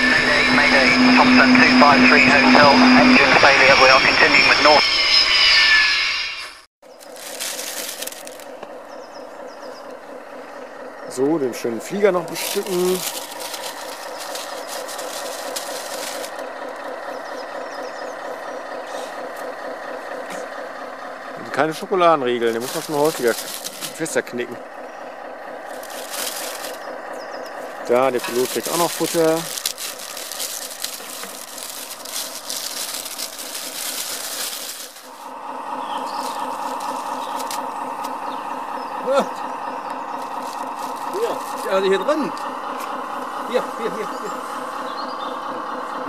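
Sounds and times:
steady hum: 0:00.0 - 0:04.6
engine idling: 0:06.8 - 0:46.0.

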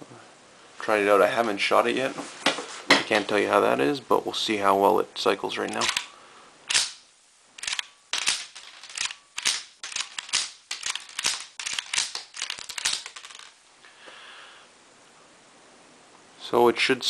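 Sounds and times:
rifle bolt clacking: 0:05.7 - 0:06.1, 0:07.6 - 0:13.1.

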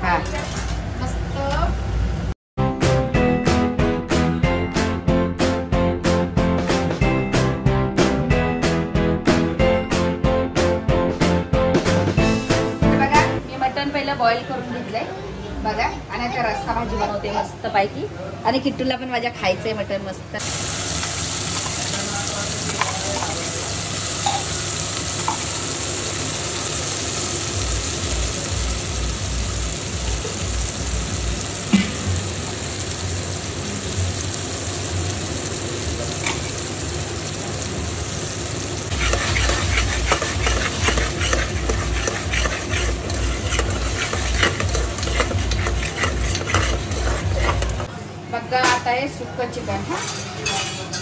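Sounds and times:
oil sizzling in a pot: 0:20.4 - 0:47.9
spoon scraping metal pot: 0:38.9 - 0:47.9.

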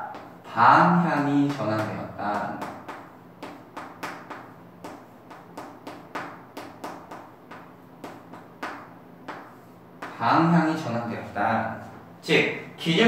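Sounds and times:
chalk tapping and scratching on blackboard: 0:01.0 - 0:10.2.

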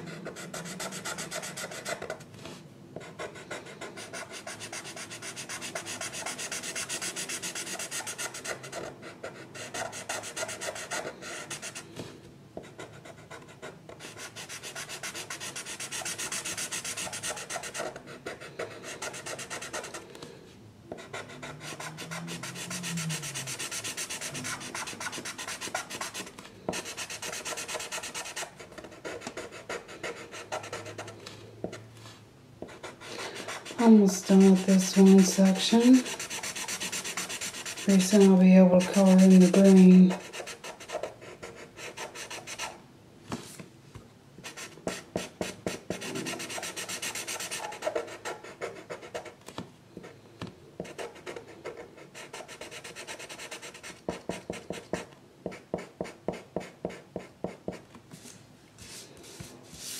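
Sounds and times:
drawing tool scratching on paper: 0:14.0 - 0:20.0, 0:21.0 - 0:31.1, 0:32.7 - 0:42.8, 0:44.4 - 0:49.4, 0:50.8 - 0:57.8.

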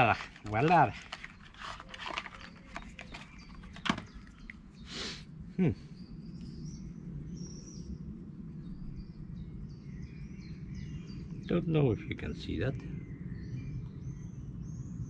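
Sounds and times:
packaging rustle: 0:00.0 - 0:04.4
birds chirping: 0:00.0 - 0:15.0
steady low hum: 0:02.8 - 0:15.0.

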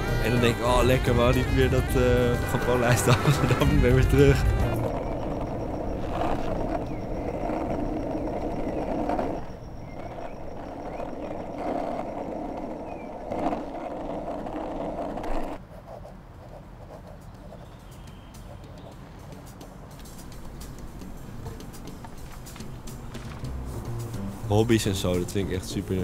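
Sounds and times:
skateboard wheels rolling on asphalt: 0:00.0 - 0:15.6, 0:17.6 - 0:26.0.

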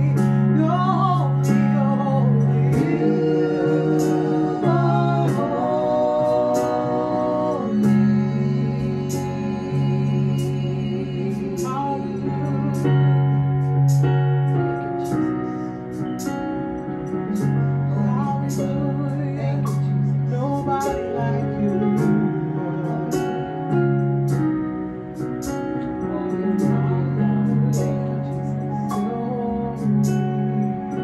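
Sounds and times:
electronic keyboard held chords: 0:00.0 - 0:31.0
women singing: 0:00.6 - 0:12.9.

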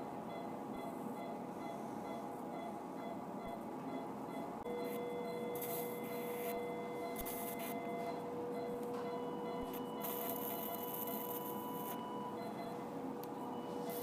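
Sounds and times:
steady activation tone: 0:04.3 - 0:12.7.

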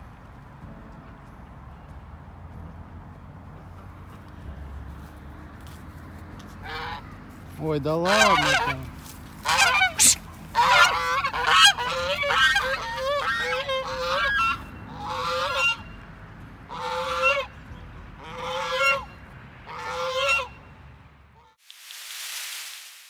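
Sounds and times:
geese honking: 0:06.6 - 0:07.2, 0:07.9 - 0:16.0, 0:16.7 - 0:17.6, 0:18.2 - 0:20.7.

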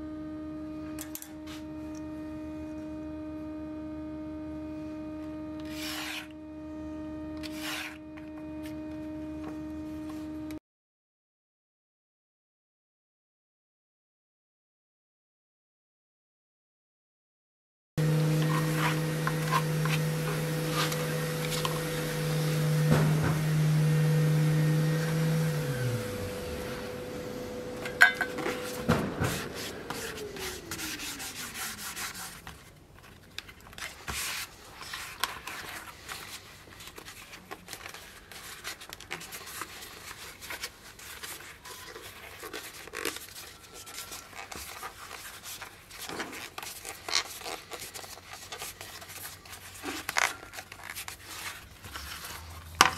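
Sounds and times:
high tone sliding down: 0:00.0 - 0:10.6, 0:18.0 - 0:32.0
machine humming and winding down: 0:00.0 - 0:10.6, 0:18.0 - 0:32.3, 0:51.8 - 0:52.9
brush scraping on leather: 0:05.6 - 0:06.3, 0:07.4 - 0:08.0, 0:28.4 - 0:32.5.

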